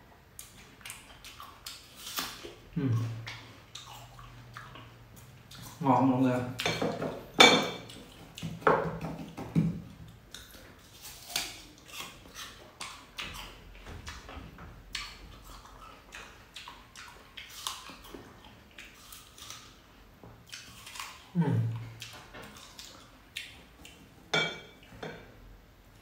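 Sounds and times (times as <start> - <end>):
person chewing juicy fruit: 0.2 - 26.0
person humming: 2.8 - 3.2, 21.4 - 21.9.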